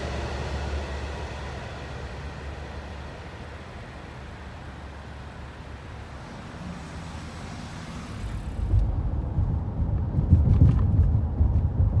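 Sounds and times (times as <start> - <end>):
road traffic: 0.0 - 11.7
moving vehicle rumble with thumps: 0.0 - 12.0.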